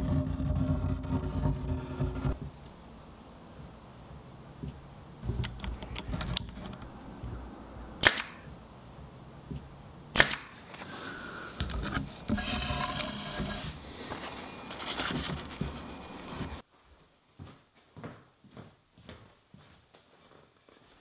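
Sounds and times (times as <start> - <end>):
pin nailer firing: 8.0 - 8.5, 10.2 - 10.6
rustling: 10.6 - 16.6.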